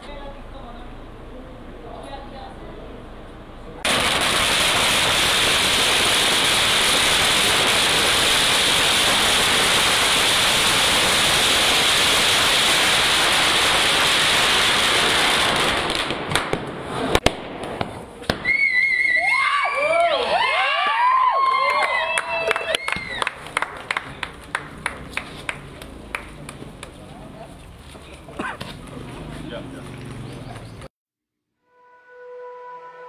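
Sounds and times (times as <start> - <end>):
firecrackers crackling: 3.8 - 30.3.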